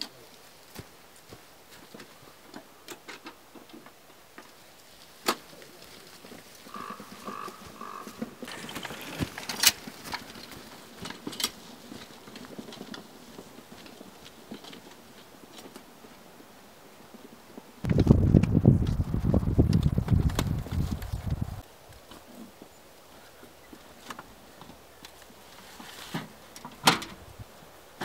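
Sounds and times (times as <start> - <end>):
footsteps on grass: 0.3 - 2.4, 4.5 - 11.0
metal wheelbarrow rattling: 8.5 - 14.9.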